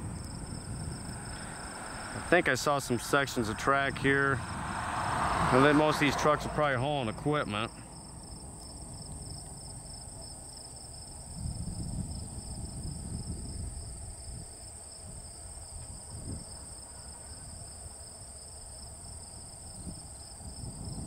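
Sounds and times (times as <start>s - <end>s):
insects trilling: 0.0s - 4.3s, 7.0s - 21.0s
low rumble: 0.0s - 10.2s.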